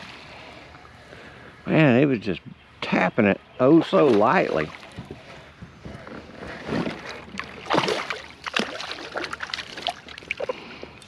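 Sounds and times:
fish splashing in water: 6.8 - 10.6.

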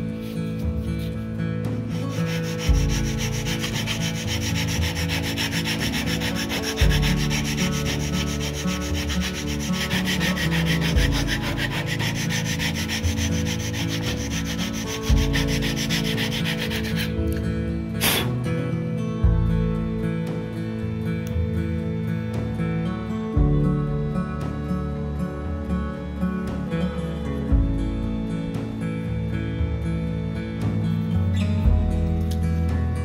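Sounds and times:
background music: 0.0 - 33.0
sandpaper scratching on wood: 1.9 - 17.2, 18.0 - 18.3.

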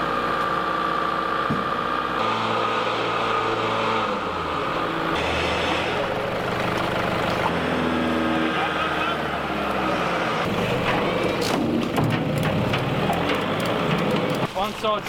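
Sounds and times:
vehicle engine idling: 3.4 - 7.6.

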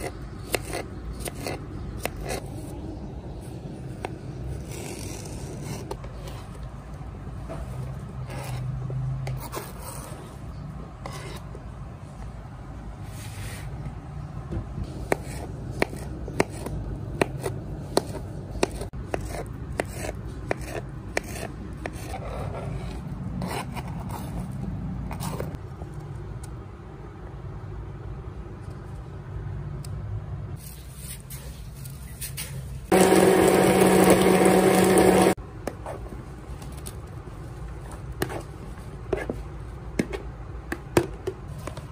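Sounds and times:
knife chopping on plastic board: 15.1 - 22.0
stick blender running: 32.9 - 35.4.

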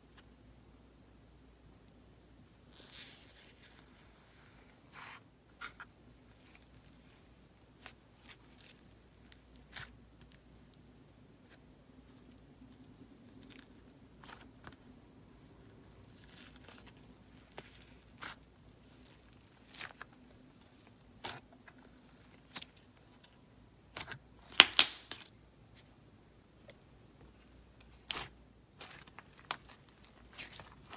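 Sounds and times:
slime squished by hand: 23.9 - 25.9, 27.9 - 30.9.

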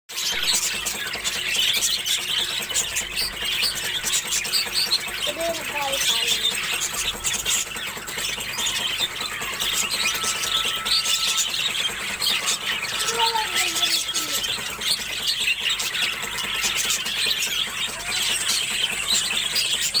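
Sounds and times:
budgerigars chattering: 0.1 - 20.0
low gliding bird call: 8.5 - 20.0.

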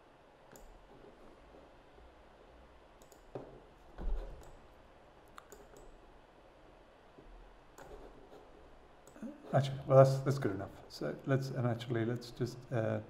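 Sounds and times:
faint room noise: 0.0 - 13.0
computer mouse clicks: 0.5 - 1.1, 3.0 - 3.6, 4.2 - 4.6, 5.3 - 6.0.

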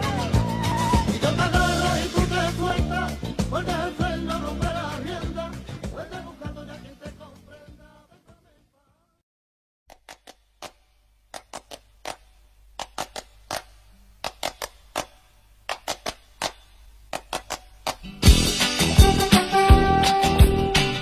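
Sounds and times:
music: 0.0 - 9.2, 17.9 - 21.0.

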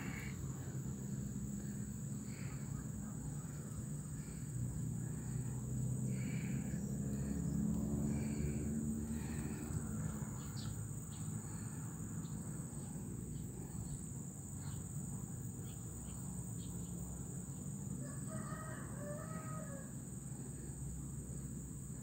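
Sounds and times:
high insect drone: 0.0 - 22.0
rooster crowing: 18.0 - 20.2.

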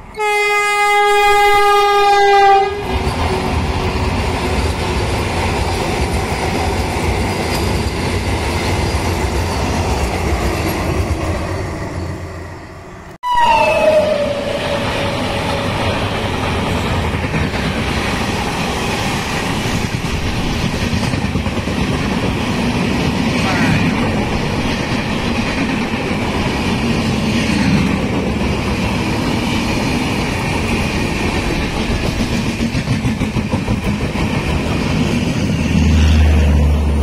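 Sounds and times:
train rumbling past: 0.0 - 37.0
train horn: 0.1 - 3.2, 13.2 - 15.2.

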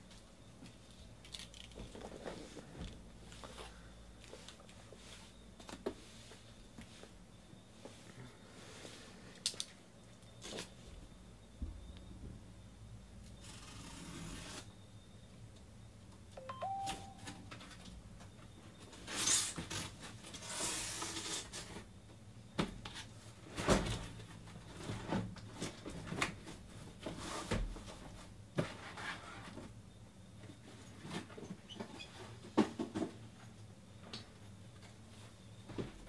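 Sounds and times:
brief pitched tone: 16.4 - 17.5.

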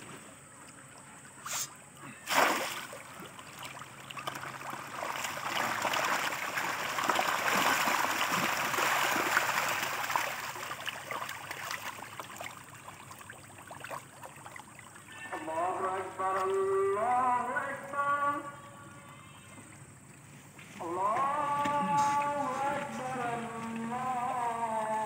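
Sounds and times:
sudden loud splash: 2.3 - 3.0
fish thrashing and splashing: 2.3 - 15.0.

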